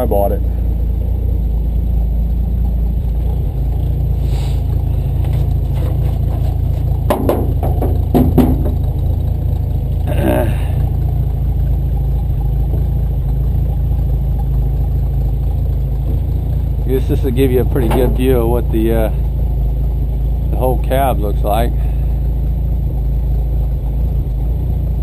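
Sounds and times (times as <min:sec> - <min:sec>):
truck engine idling: 0:00.0 - 0:25.0
knocks and scrapes: 0:04.2 - 0:09.3, 0:17.0 - 0:19.1.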